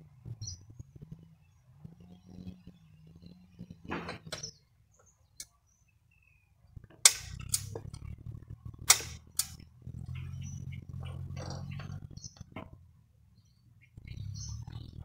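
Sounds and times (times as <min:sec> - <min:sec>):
sharp clacks and knocks: 0:06.8 - 0:08.0, 0:08.8 - 0:09.6
low rumble: 0:06.8 - 0:13.0.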